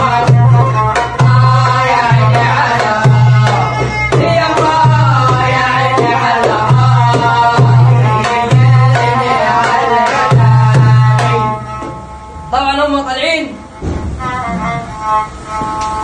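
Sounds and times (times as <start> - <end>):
hand drum beat: 0.0 - 12.0.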